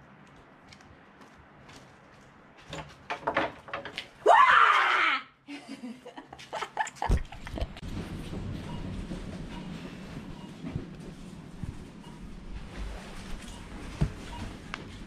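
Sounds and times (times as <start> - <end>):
gate opening with knocks: 2.7 - 4.1
woman screaming: 4.2 - 5.4
laughter: 5.5 - 7.8.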